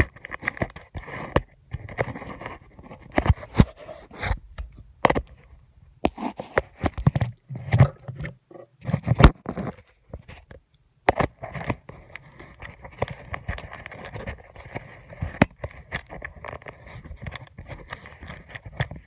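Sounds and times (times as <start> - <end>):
scratching on hard surface: 0.0 - 4.4, 5.0 - 19.0.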